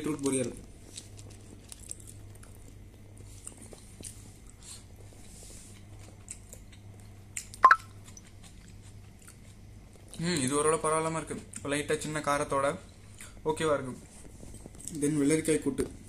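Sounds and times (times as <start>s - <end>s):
low steady hum: 0.0s - 16.0s
person chewing: 0.6s - 10.2s.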